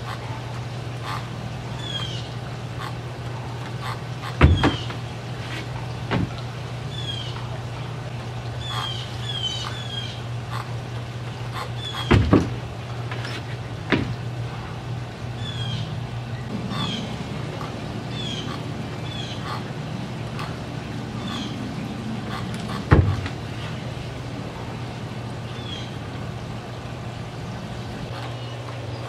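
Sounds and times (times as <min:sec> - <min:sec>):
birds chirping: 0:00.0 - 0:29.0
steady low hum: 0:00.0 - 0:29.0
body thudding on wooden rig: 0:04.2 - 0:06.4, 0:11.9 - 0:14.2, 0:22.3 - 0:23.5.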